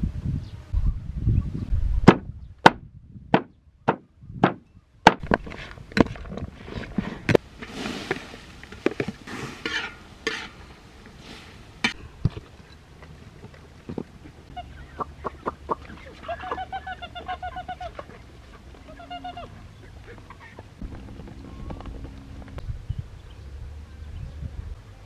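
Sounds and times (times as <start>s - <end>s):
rustling: 5.2s - 14.5s.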